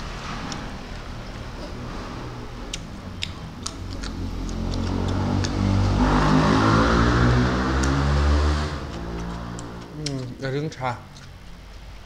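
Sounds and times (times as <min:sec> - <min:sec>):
vehicle engine rumbling: 0:00.0 - 0:10.4
wet mouth clicks from eating: 0:02.7 - 0:05.6, 0:08.9 - 0:10.4.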